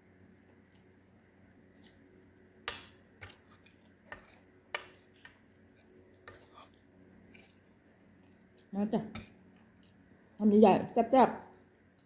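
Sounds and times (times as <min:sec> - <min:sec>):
metal spoon scraping ceramic plate: 0:06.3 - 0:07.6.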